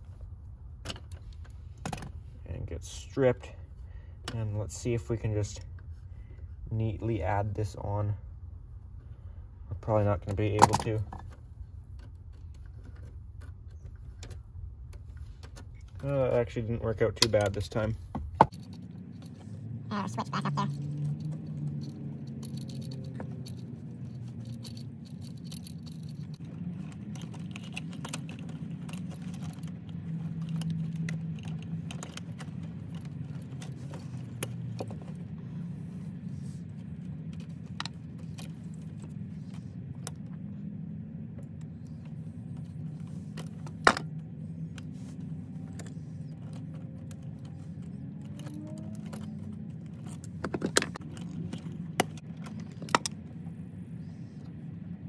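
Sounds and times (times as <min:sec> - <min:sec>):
steady low hum: 0:00.0 - 0:55.0
metallic clicks of wires and tools: 0:20.9 - 0:35.2.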